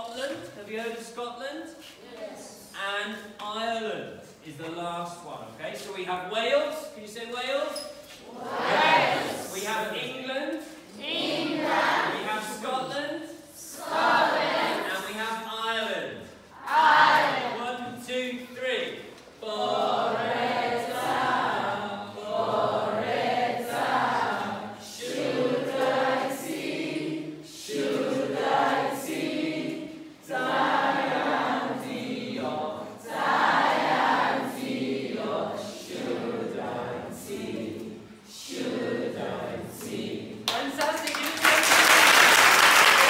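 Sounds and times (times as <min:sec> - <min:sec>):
children singing unaccompanied: 0:08.2 - 0:09.5, 0:11.0 - 0:12.2, 0:13.7 - 0:15.1, 0:16.6 - 0:17.6, 0:19.4 - 0:40.4.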